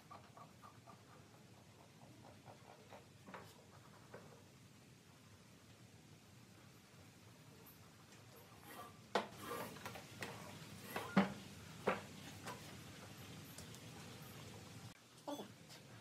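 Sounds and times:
light scraping of wood: 8.4s - 11.2s.

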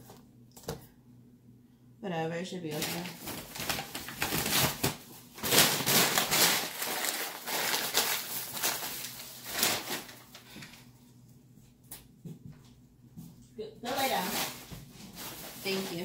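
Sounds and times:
plastic bags rustling: 2.7s - 10.9s, 13.8s - 16.0s.

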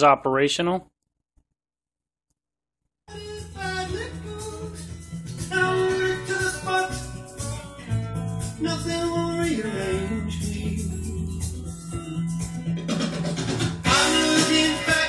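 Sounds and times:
music from vinyl record: 3.1s - 15.0s.

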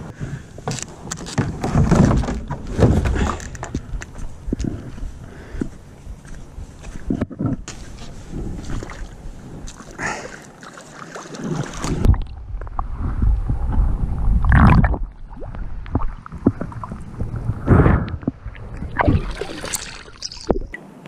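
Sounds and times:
water splashing around swimmer: 8.6s - 12.3s, 18.3s - 20.8s
muffled underwater bubbly rumble: 11.8s - 20.8s.

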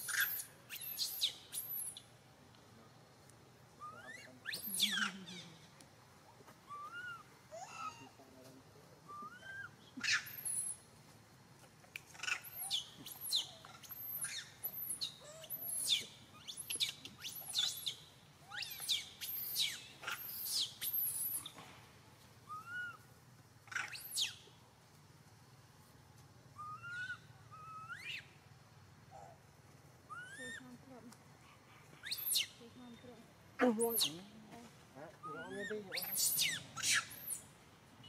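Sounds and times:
baby monkey shrill squeals: 0.0s - 2.0s, 3.8s - 5.4s, 6.7s - 8.2s, 9.2s - 10.8s, 12.1s - 21.5s, 22.5s - 23.0s, 23.7s - 24.4s, 26.6s - 28.3s, 30.1s - 30.7s, 32.0s - 32.6s, 33.7s - 34.2s, 35.2s - 37.5s
baby monkey cooing: 3.8s - 5.7s, 6.7s - 8.2s, 9.1s - 10.8s, 12.1s - 21.6s, 22.5s - 23.0s, 23.7s - 24.4s, 26.6s - 28.2s, 30.1s - 30.8s, 32.0s - 32.6s, 33.6s - 34.3s, 35.2s - 37.5s.

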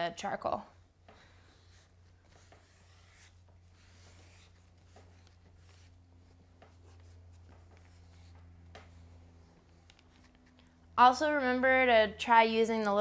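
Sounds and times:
low steady hum: 0.0s - 13.0s
eraser scratching on paper: 1.5s - 6.0s.

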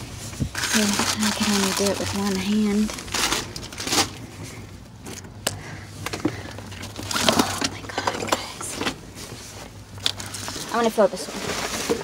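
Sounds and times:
cardboard and plastic bags rustling: 0.0s - 12.0s
low steady hum: 0.0s - 12.0s.

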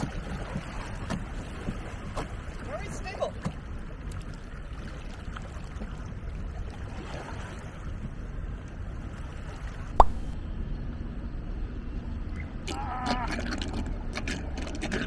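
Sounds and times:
wind rumble on microphone: 0.0s - 2.8s, 3.4s - 15.0s
water lapping against boat: 0.0s - 10.4s.

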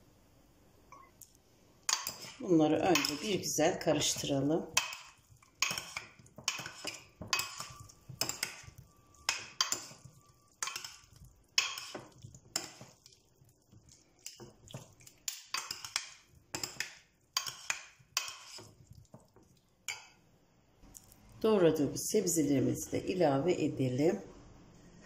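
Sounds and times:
metal spoons scraping glass dish: 1.9s - 3.4s, 4.8s - 13.0s.

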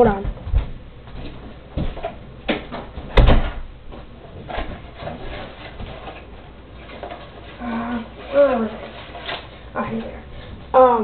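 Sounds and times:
knocks and bumps: 0.0s - 5.2s.

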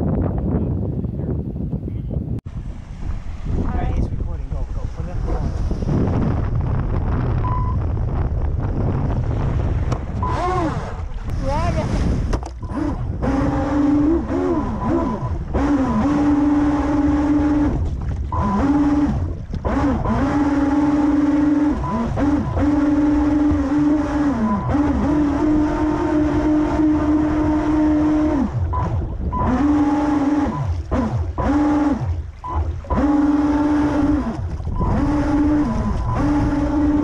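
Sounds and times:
rush of spray and wind: 0.8s - 37.0s
electric motor whining: 12.6s - 17.8s, 18.4s - 37.0s.

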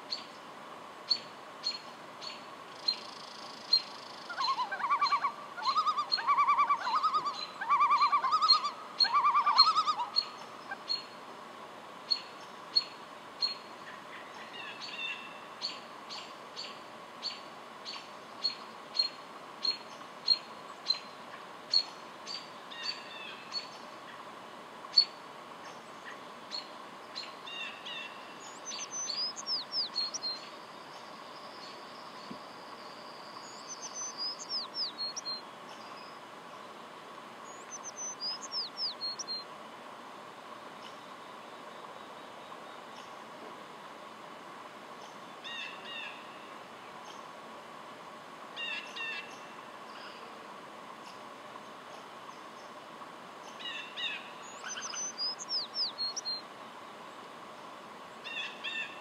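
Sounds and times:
loon calling: 4.3s - 10.8s.

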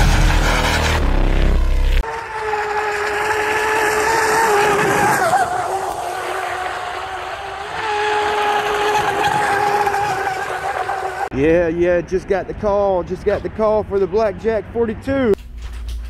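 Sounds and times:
electric motor whine: 1.0s - 11.3s.

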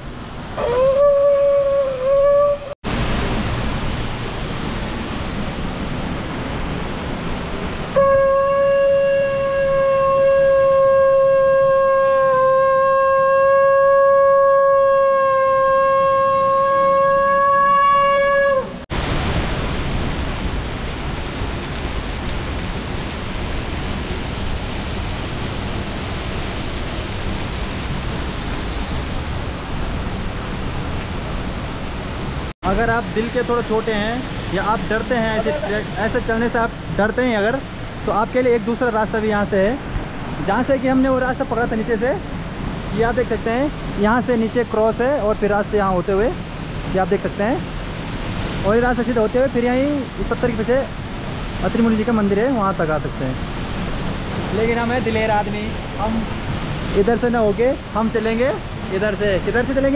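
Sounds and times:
steady rushing noise: 2.6s - 8.0s, 18.6s - 59.9s.

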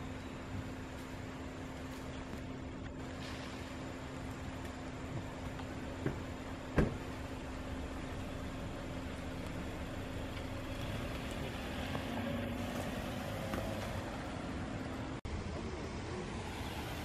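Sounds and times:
car driving past: 9.7s - 14.9s.

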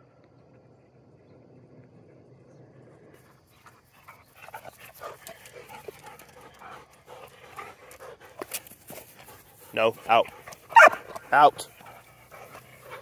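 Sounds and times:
dogs panting: 3.2s - 13.0s.

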